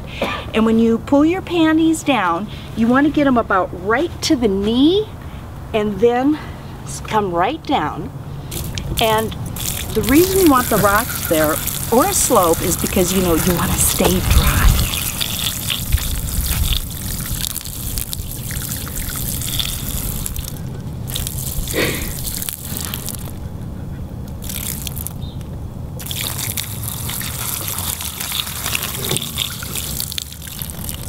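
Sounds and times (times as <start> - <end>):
liquid trickling onto rocks: 8.5 - 23.4, 24.4 - 25.2, 26.0 - 31.0.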